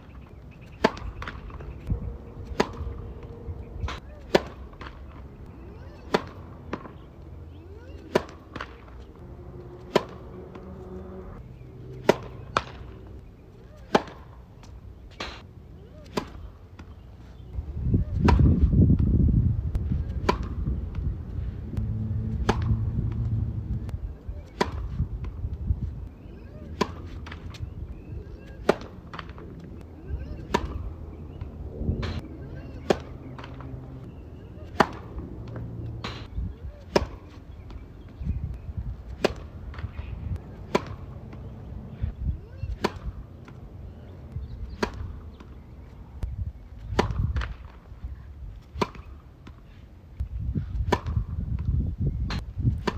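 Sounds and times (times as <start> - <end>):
tennis ball bouncing: 0.1 - 15.1, 19.7 - 25.6, 26.2 - 29.8, 32.7 - 36.2, 36.8 - 47.8, 48.6 - 49.6, 50.2 - 51.3
racket hitting tennis ball: 0.6 - 17.0, 18.1 - 19.1, 19.7 - 25.5, 26.1 - 47.9, 48.6 - 49.7, 50.7 - 51.4, 52.3 - 52.9
low rumble: 1.7 - 4.0, 18.9 - 24.2.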